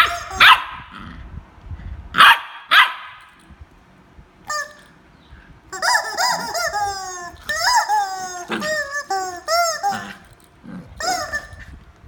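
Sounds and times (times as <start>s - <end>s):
puppy barking: 0.0s - 0.9s, 2.2s - 3.3s.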